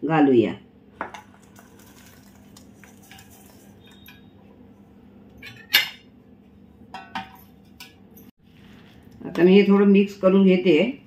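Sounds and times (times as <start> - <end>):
steel utensils clinking: 1.9 - 4.3, 5.4 - 6.1.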